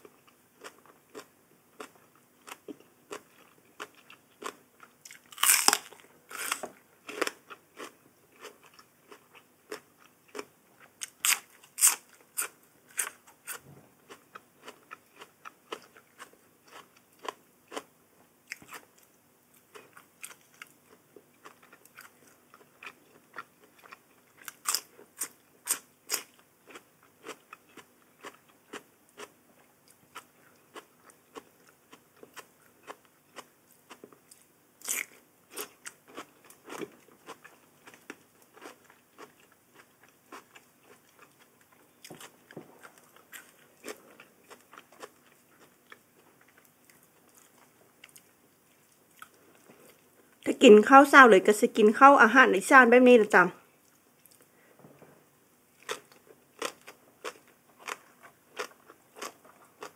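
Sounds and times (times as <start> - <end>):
crunching bites: 2.5 - 8.5.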